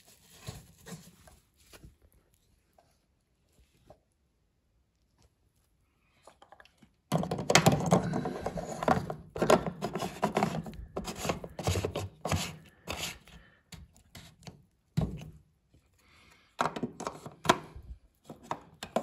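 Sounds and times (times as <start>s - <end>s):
plastic filter being screwed in: 7.1s - 13.4s, 18.3s - 19.0s.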